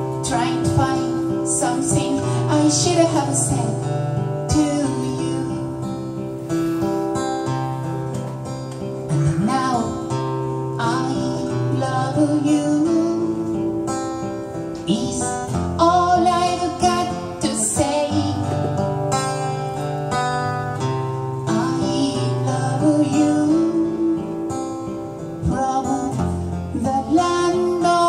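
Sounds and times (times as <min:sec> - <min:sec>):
woman singing: 0:00.0 - 0:06.1, 0:09.2 - 0:14.0, 0:14.7 - 0:19.1, 0:21.4 - 0:28.0
acoustic guitar chords: 0:00.0 - 0:28.0.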